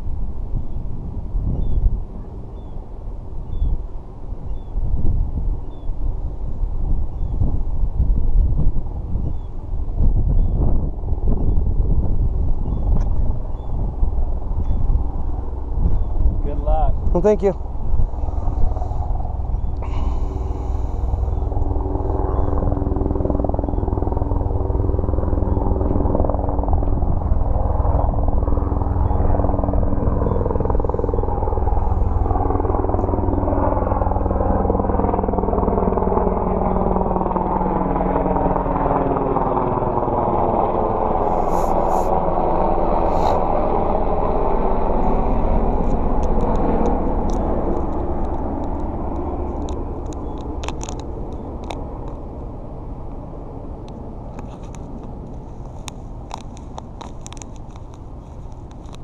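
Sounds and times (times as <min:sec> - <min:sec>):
engine passing by: 0:39.7 - 0:52.4.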